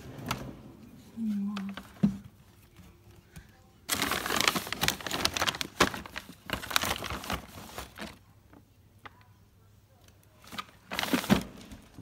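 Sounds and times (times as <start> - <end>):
plastic bags crinkling: 3.8 - 8.3.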